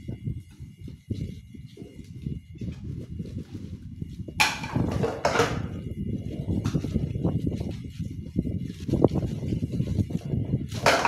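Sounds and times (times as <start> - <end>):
dishes knocking together: 4.4 - 5.8, 10.8 - 11.0
sponge scrubbing plates: 4.4 - 5.8, 10.7 - 11.0.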